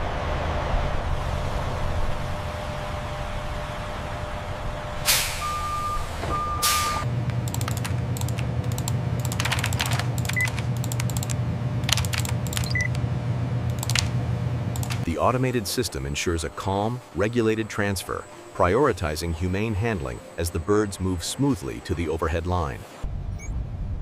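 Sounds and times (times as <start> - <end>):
steady low hum: 0.0 - 24.0
hiss bursts: 5.1 - 7.0
computer keyboard typing: 7.4 - 13.0, 13.7 - 14.1, 14.7 - 15.1
short high beeps: 12.6 - 13.0.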